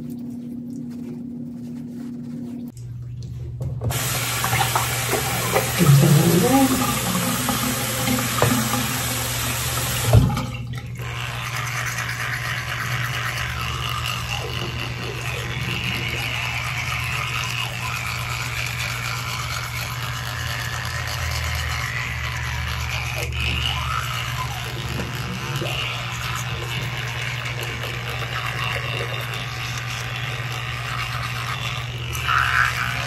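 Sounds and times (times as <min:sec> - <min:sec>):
tap water running into sink: 0:03.6 - 0:13.4.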